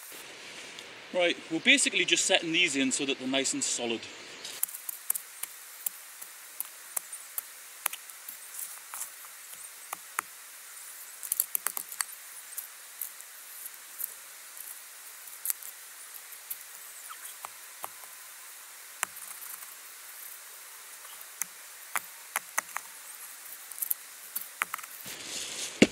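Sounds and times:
stones clicking and crunching: 4.5 - 10.3, 11.2 - 16.7, 19.0 - 25.9.

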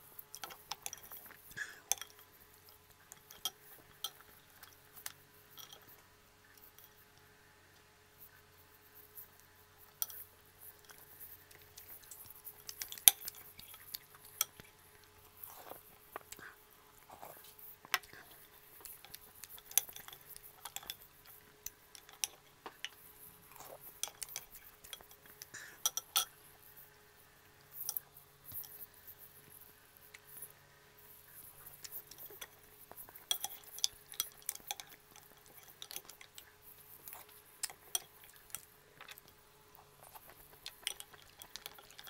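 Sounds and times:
shells and spoon clinking on bowl: 3.1 - 5.9, 23.8 - 26.4, 31.8 - 36.4
wet eating sounds: 9.3 - 26.3, 31.2 - 42.0.

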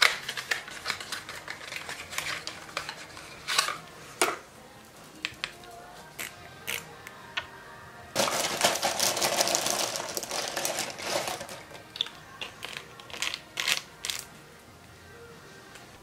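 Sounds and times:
plastic bottles clattering: 8.2 - 13.8.

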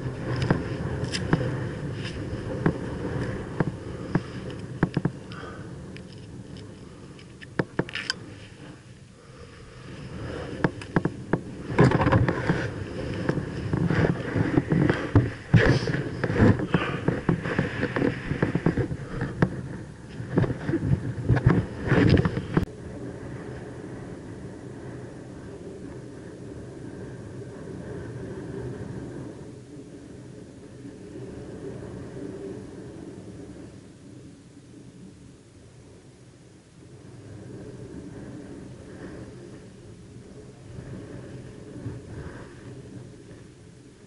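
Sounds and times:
hands handling handlebar and cables: 7.2 - 8.2.

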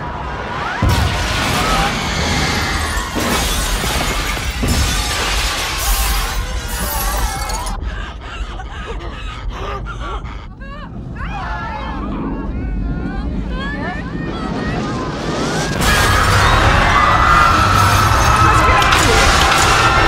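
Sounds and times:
people crying out: 0.0 - 15.0, 15.7 - 20.0
glass shattering: 2.5 - 7.6
low rumble: 7.5 - 20.0.

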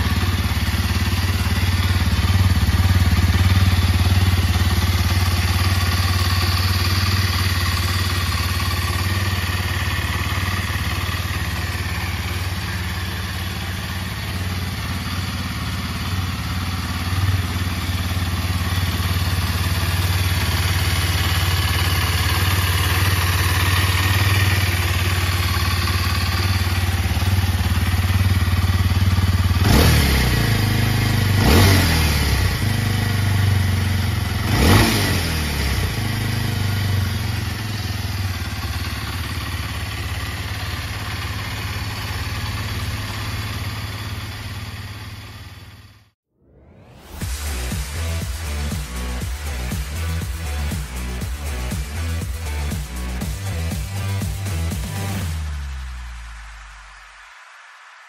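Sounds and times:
motorcycle engine idling: 0.0 - 46.2, 47.1 - 55.8
throttle revs: 17.1 - 38.0, 46.4 - 56.9.

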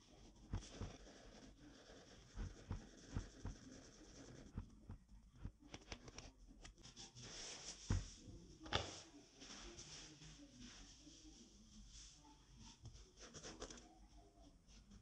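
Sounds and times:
scratching on foam mat: 0.2 - 5.5.

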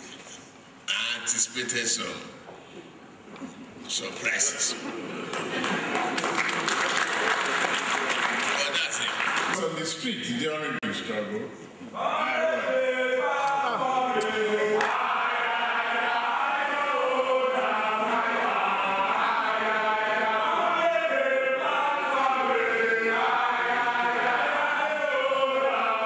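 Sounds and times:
group chanting: 11.9 - 26.0.

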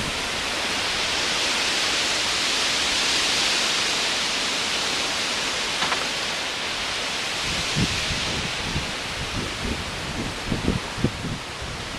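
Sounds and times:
wind and rain through trees: 0.0 - 11.9
brief knock: 5.8 - 6.2.

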